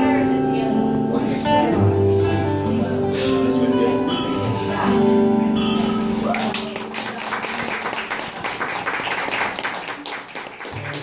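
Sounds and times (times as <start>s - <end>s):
acoustic guitar chord ringing: 0.0s - 7.1s
applause: 6.2s - 11.0s.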